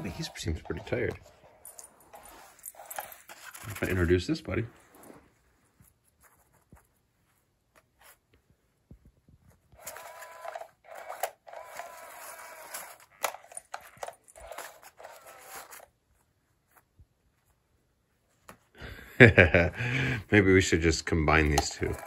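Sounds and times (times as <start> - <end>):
wand scraping against fabric: 0.0 - 8.3
small motor whirring: 9.8 - 15.9, 21.6 - 22.0.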